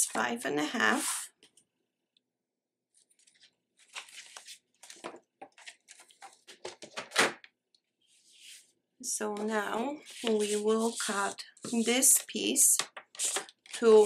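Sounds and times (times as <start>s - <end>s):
paper rustling: 3.0s - 7.3s, 10.0s - 14.0s.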